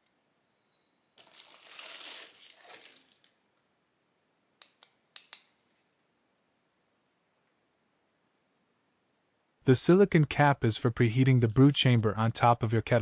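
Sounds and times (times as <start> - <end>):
plastic wrapping crinkling: 1.2 - 3.4.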